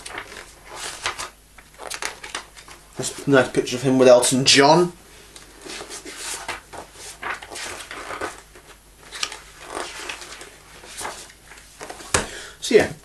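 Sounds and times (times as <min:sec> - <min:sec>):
book pages rustling: 0:00.0 - 0:03.5, 0:05.4 - 0:12.3.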